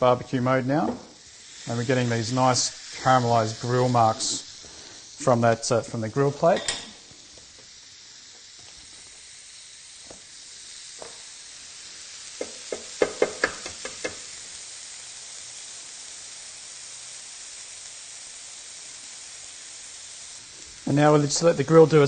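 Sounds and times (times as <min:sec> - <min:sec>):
meat sizzling on grill: 0:00.0 - 0:22.0.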